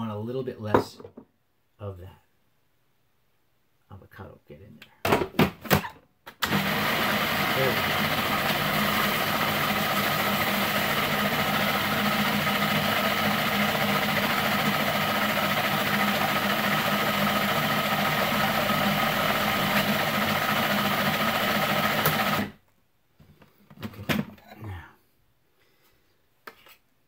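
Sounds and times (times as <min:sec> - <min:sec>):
food processor motor running: 0:06.4 - 0:22.6.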